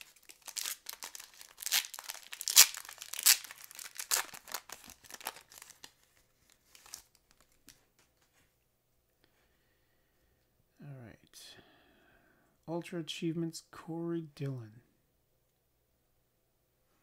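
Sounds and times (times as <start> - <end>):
foil wrapper crackling: 0.0 - 7.8.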